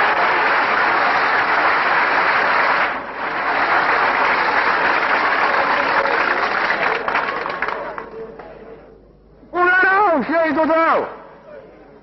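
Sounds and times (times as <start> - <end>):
large crowd applauding: 0.0 - 8.8.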